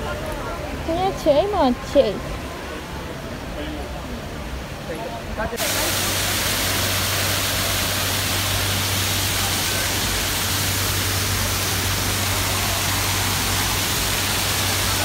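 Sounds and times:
waterfall rushing into a pond: 0:05.6 - 0:15.0.

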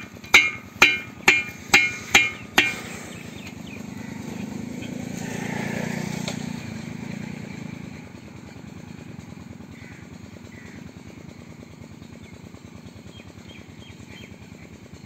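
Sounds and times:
hammer blows on metal: 0:00.0 - 0:03.2
low steady hum: 0:00.0 - 0:04.8.

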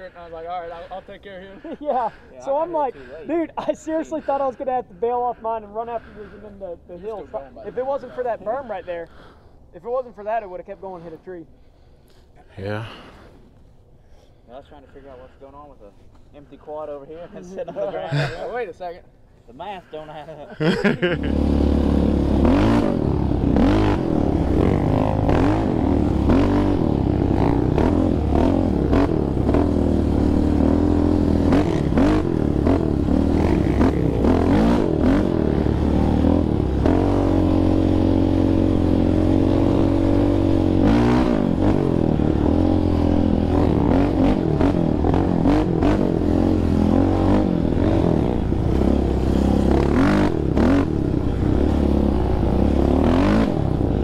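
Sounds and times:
quad engine revving: 0:20.7 - 0:54.0.

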